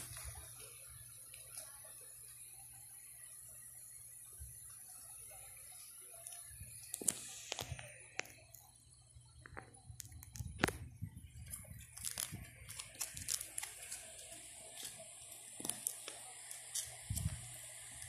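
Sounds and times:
plastic sleeves crinkling: 11.4s - 17.6s.

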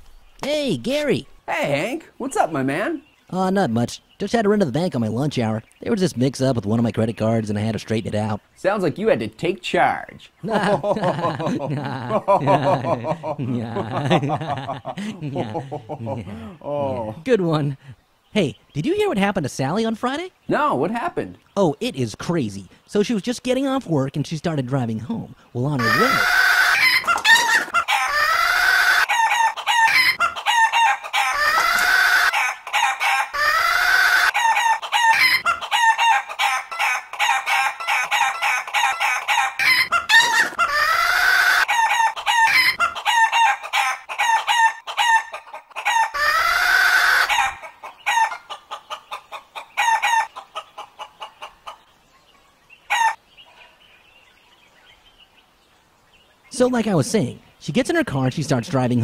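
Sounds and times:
chicken squawking: 25.8s - 53.2s
chicken clucking: 25.8s - 53.7s.

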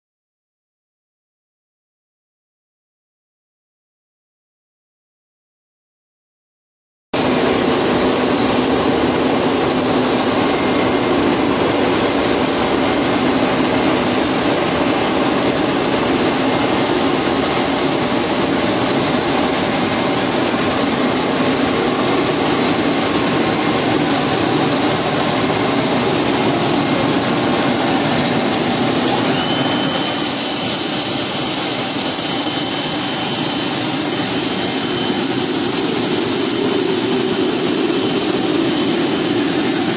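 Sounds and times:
extruder machine running: 7.2s - 39.9s
high steady whine: 7.2s - 39.9s
steady tone: 7.2s - 39.9s
hissing rush: 9.0s - 39.9s.

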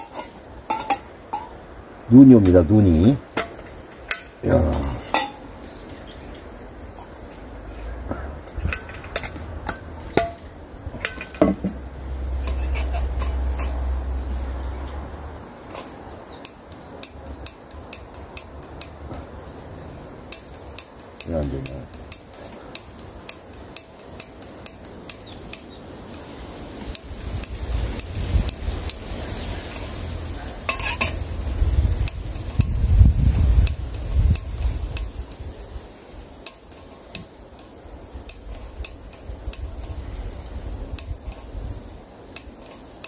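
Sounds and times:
metal pot ticking and clinking: 0.0s - 1.6s, 3.4s - 5.4s, 8.7s - 13.9s, 15.7s - 19.0s, 20.3s - 25.7s, 30.6s - 31.3s, 36.4s - 37.2s, 42.3s - 43.0s.

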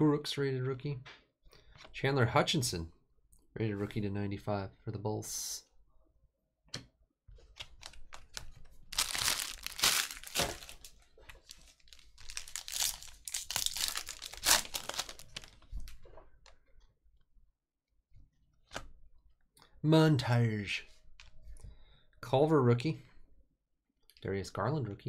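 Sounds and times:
foil wrapper crinkling: 7.8s - 15.9s.

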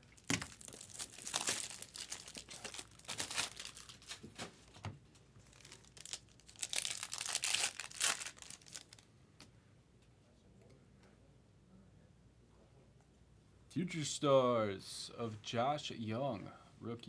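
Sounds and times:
foil wrapper crinkling: 0.0s - 4.4s, 5.4s - 9.1s.

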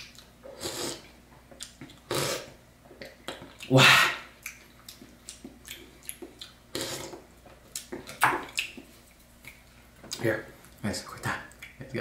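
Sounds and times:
wet chewing and mouth smacking: 4.4s - 9.8s.

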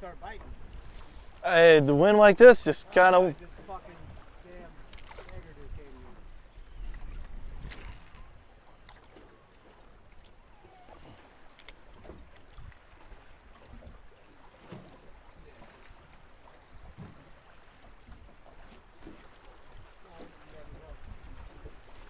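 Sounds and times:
water slapping against boat hull: 3.4s - 22.0s
wind rumble on microphone: 5.2s - 9.2s.

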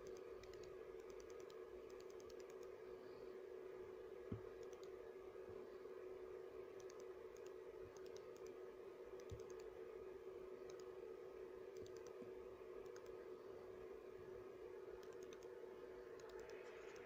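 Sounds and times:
faint high-pitched clicks: 0.0s - 2.8s, 4.5s - 5.0s, 6.8s - 8.6s, 9.2s - 9.7s, 10.6s - 11.0s, 11.7s - 13.2s, 15.0s - 17.0s
steady low hum: 0.0s - 17.0s.

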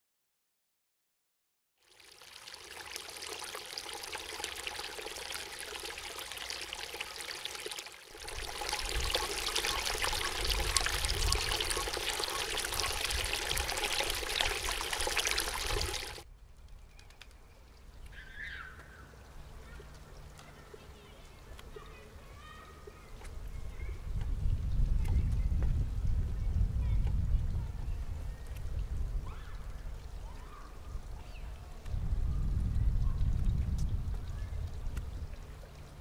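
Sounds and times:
water splashing into pool: 1.8s - 16.3s.

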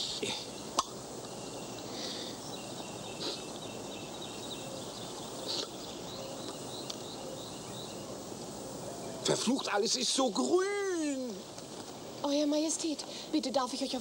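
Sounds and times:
faint chirping: 0.0s - 14.0s
person sniffing: 1.9s - 2.4s, 3.2s - 3.5s, 5.4s - 5.7s.

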